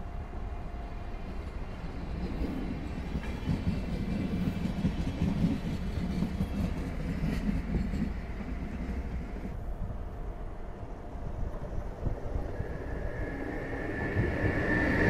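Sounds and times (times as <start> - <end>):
train engine: 0.0 - 15.0
train wheels rolling: 0.9 - 15.0
wheels clicking over rail joints: 1.3 - 9.6.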